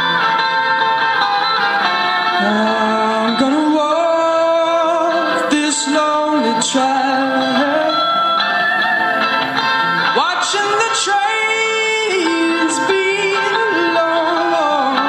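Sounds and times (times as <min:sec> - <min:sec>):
sustained guitar: 0:00.0 - 0:15.0
man singing wordless notes: 0:02.4 - 0:08.3, 0:10.1 - 0:15.0.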